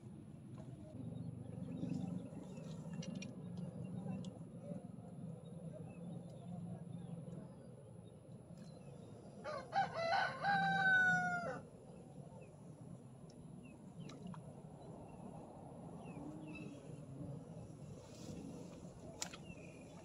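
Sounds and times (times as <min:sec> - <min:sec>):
rooster crowing: 0:09.4 - 0:11.6.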